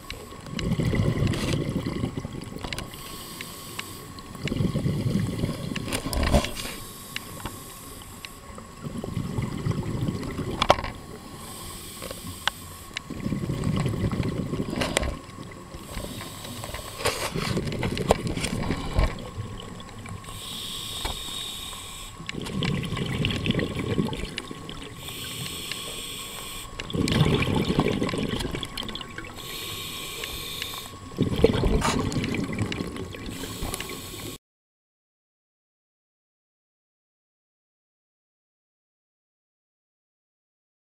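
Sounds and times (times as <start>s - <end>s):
exhaled bubbles underwater: 0.0s - 3.2s, 4.1s - 6.6s, 8.4s - 12.3s, 13.0s - 20.5s, 22.1s - 34.4s
regulator inhalation hiss: 2.9s - 4.3s, 6.6s - 8.5s, 11.2s - 13.0s, 15.8s - 17.5s, 20.2s - 22.3s, 24.9s - 26.9s, 29.3s - 31.1s, 33.3s - 34.4s.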